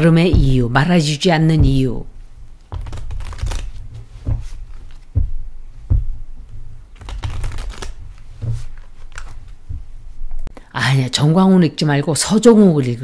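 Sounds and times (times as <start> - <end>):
cards being shuffled: 2.4 - 10.5.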